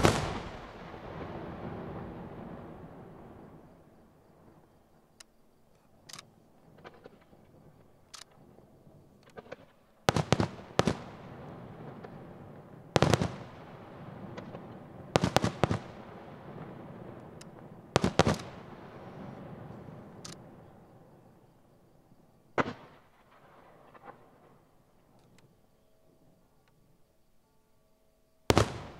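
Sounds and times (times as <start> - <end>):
light firework pops: 0.0 - 1.2, 13.0 - 13.6, 14.2 - 16.0, 16.6 - 20.5, 22.6 - 24.6, 28.5 - 28.9
loud firework bangs echoing: 0.0 - 3.6, 10.1 - 20.6, 28.5 - 28.9.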